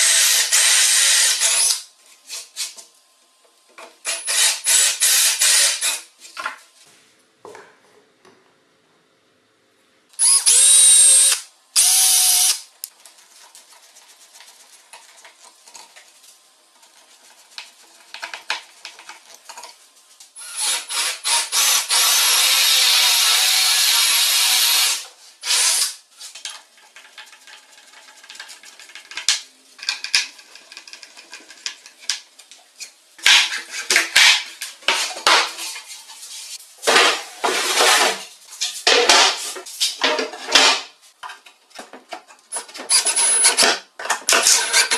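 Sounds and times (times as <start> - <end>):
cordless drill driving screws: 0.0 - 1.8, 10.2 - 12.6, 20.4 - 25.9.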